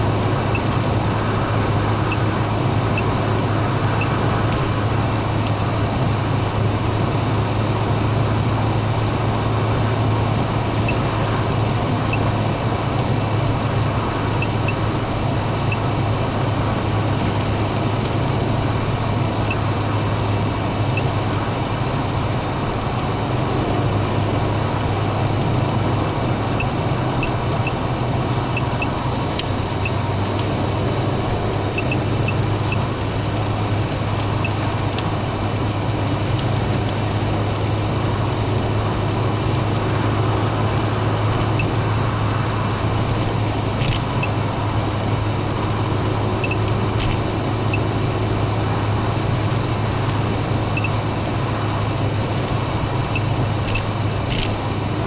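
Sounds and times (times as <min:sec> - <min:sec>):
car road and engine noise: 0:00.0 - 0:55.0.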